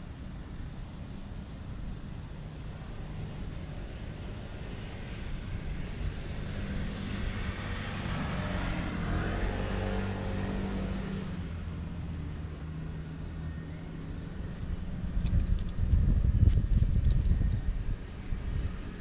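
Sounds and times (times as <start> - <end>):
motor vehicle passing: 4.7 - 19.0.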